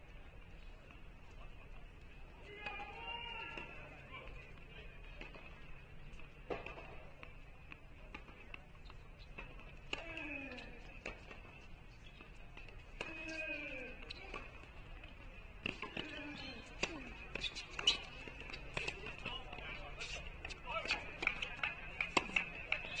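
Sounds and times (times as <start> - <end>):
rackets striking tennis balls: 5.2 - 23.0
tennis balls bouncing on hard court: 5.2 - 23.0
voices calling out: 12.9 - 23.0.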